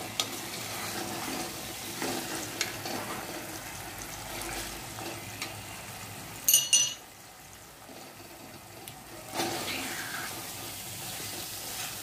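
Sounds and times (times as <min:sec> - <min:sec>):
chicken sizzling in oil: 0:00.0 - 0:12.0
spoon clinking against pot: 0:06.5 - 0:07.0.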